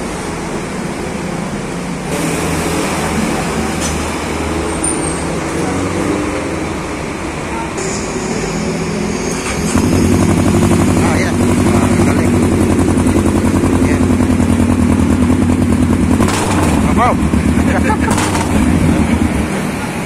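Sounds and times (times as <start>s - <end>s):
motorcycle engine idling: 9.8s - 19.8s.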